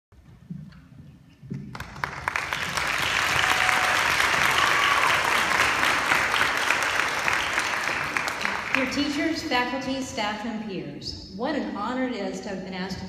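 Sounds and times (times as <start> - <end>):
audience applauding: 1.7 - 9.1.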